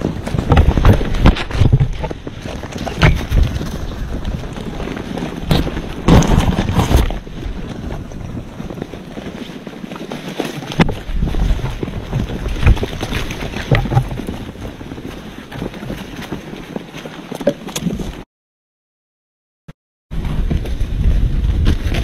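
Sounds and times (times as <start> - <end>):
wind buffeting the microphone: 0.0 - 9.4, 20.1 - 22.0.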